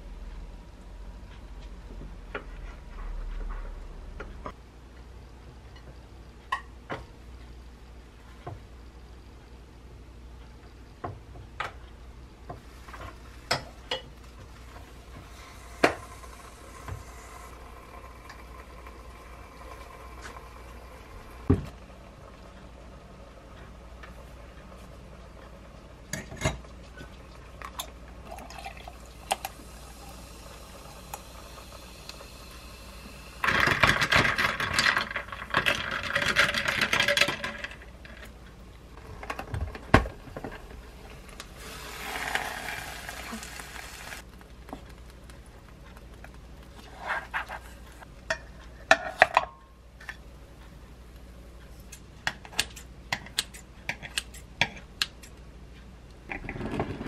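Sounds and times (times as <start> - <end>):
liquid pouring into glass: 27.7 - 30.2.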